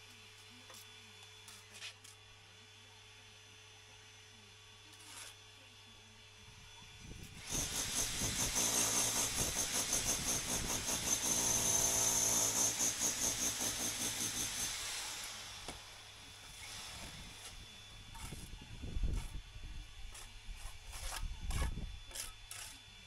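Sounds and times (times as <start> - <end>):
power drill boring into concrete: 7.4 - 18.5.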